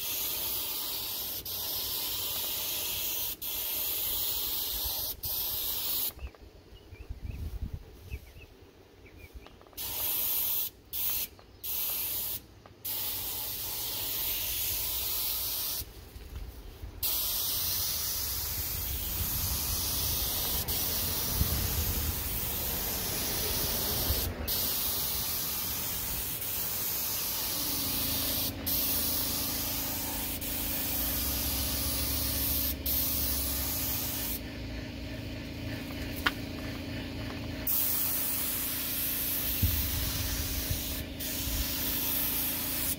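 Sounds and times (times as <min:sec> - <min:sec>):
paint spray gun hissing: 0:00.0 - 0:06.3, 0:09.8 - 0:42.9
steady low hum: 0:15.8 - 0:42.9.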